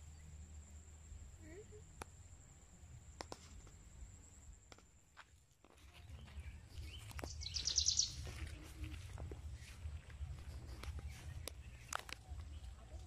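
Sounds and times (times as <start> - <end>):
footsteps walking outdoors: 4.6 - 13.0
bird trilling: 7.3 - 8.3.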